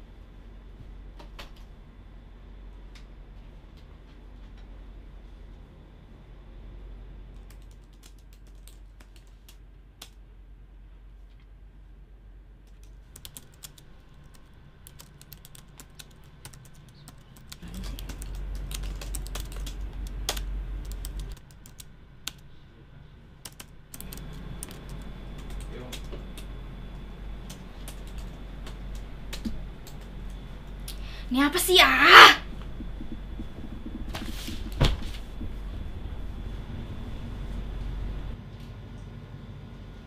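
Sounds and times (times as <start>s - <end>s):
typing on laptop keyboard: 7.3s - 10.2s, 12.7s - 22.5s, 23.4s - 26.1s, 27.5s - 30.1s, 32.6s - 35.6s
low hum: 17.5s - 40.0s.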